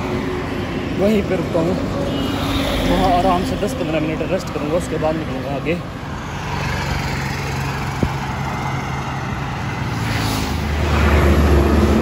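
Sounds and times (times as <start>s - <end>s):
highway traffic: 0.0s - 12.0s
heavy vehicle rumble passing: 6.2s - 12.0s.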